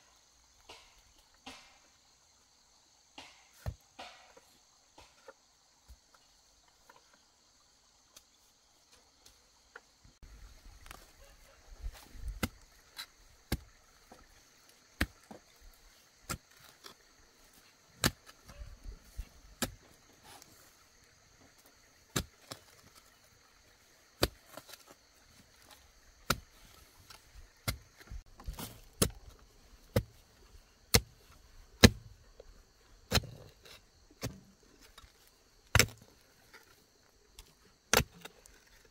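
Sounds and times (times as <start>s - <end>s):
insects chirring: 0.0s - 38.9s
tool striking wood: 0.7s - 1.8s, 3.2s - 4.4s.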